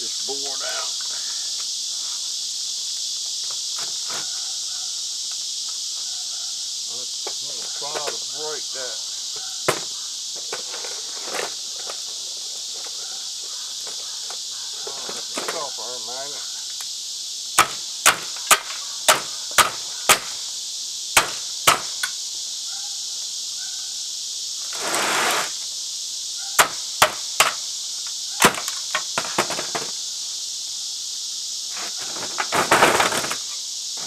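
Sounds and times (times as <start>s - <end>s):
katydids buzzing: 0.0s - 34.0s
brief scrape: 24.8s - 25.6s.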